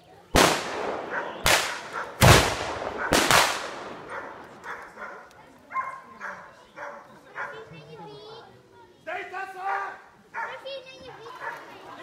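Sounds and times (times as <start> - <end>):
gunshots with echo: 0.4 - 5.0.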